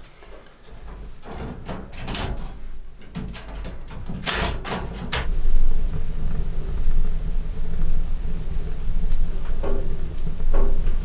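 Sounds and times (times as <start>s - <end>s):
metal stove door clanking: 0.8s - 5.3s
steady low rumble: 5.2s - 11.0s.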